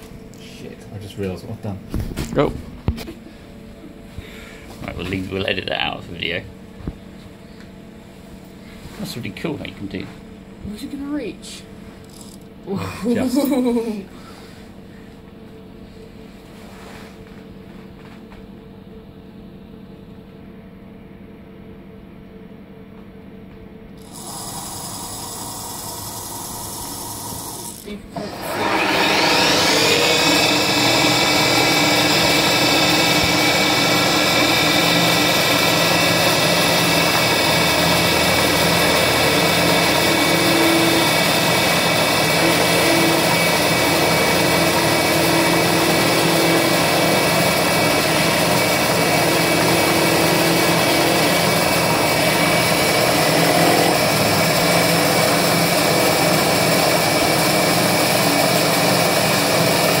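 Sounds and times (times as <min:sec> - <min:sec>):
milling spindle whine: 0:12.0 - 0:12.5, 0:24.0 - 1:00.0.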